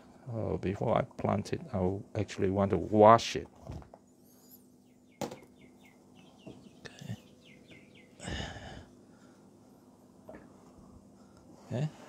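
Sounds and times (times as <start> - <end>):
faint bird chirping: 4.0 - 9.4.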